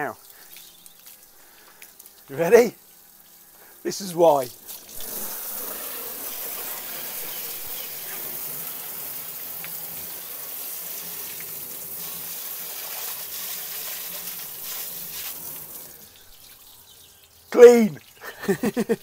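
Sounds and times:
garden hose spraying water: 0.0 - 19.0
water running off: 0.0 - 19.0
water splashing on seat and floor: 4.4 - 18.9.

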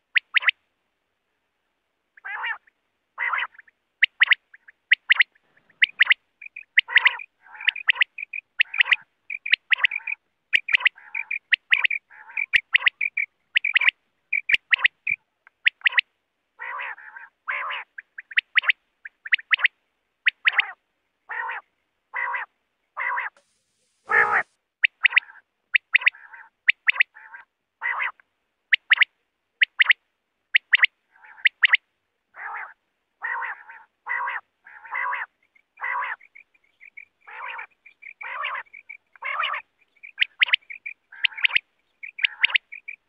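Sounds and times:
quail calling: 0.0 - 0.6, 2.2 - 23.4, 24.1 - 43.0.

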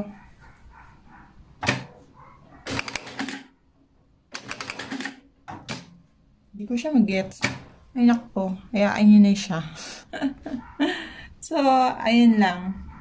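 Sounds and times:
sewing machine clattering: 2.6 - 3.5, 4.3 - 6.0.

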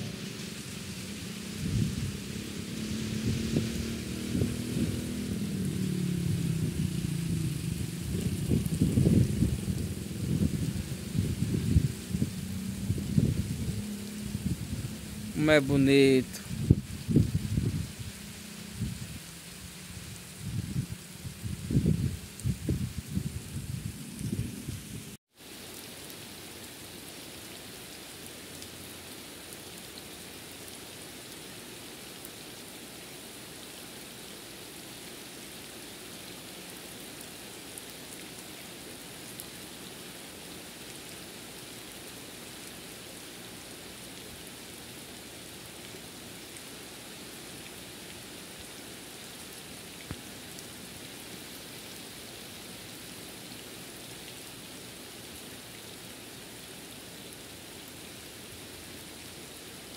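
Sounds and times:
steady rain falling: 0.0 - 59.9
single raindrop ticks: 50.0 - 50.7.

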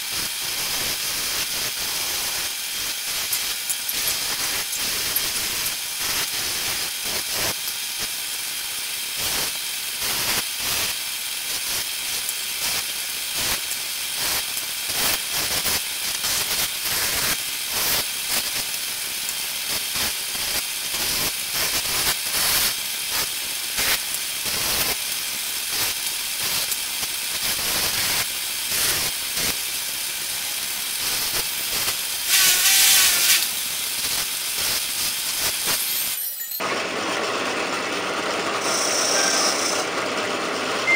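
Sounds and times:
wire brush wheel scratching metal: 1.3 - 7.2, 31.0 - 36.5, 38.6 - 39.9
squealing scrape: 38.6 - 39.9.

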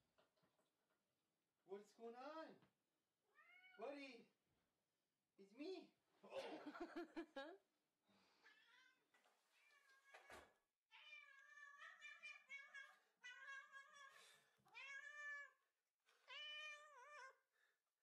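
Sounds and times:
cat meowing: 3.3 - 3.8, 9.6 - 17.4.

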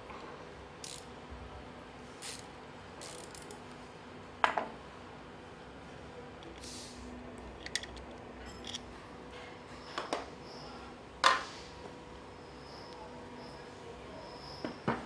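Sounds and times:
faint workshop hum: 0.0 - 15.0
clicks and knocks of hand tools: 7.6 - 8.9.

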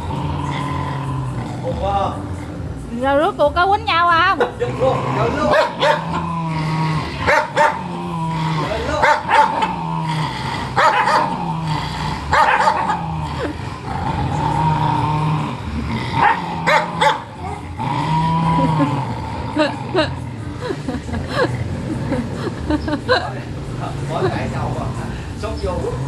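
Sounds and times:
dogs growling: 0.0 - 3.0, 4.4 - 26.0
dogs barking sharply: 5.5 - 6.2, 7.2 - 7.9, 9.0 - 9.8, 10.8 - 11.4, 12.3 - 13.1, 16.2 - 17.3.

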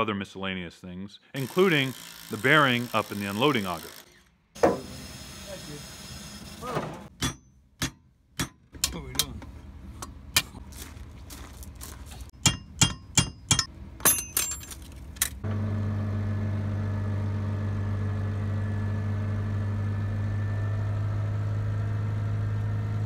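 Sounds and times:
metal tools clinking: 12.5 - 15.4.

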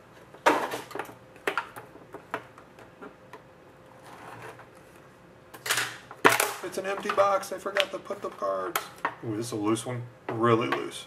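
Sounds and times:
box scraping on glass table: 4.0 - 4.7.

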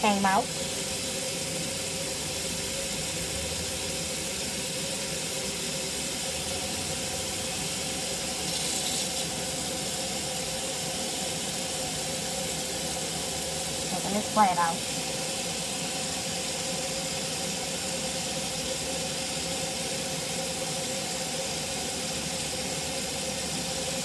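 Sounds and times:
tap water splashing on hair: 8.4 - 9.4.

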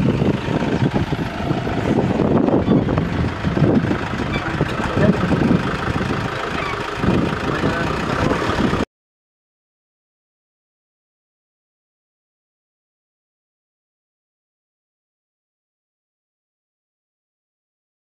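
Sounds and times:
vehicle engine idling: 0.0 - 8.9.

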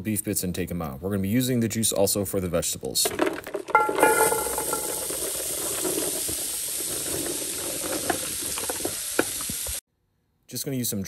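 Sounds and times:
vegetables sizzling in fat: 4.0 - 9.8.

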